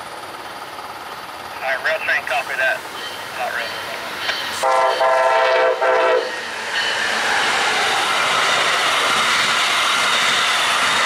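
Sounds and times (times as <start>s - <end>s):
train passing on rails: 0.0s - 11.0s
train horn blasts: 4.6s - 6.4s.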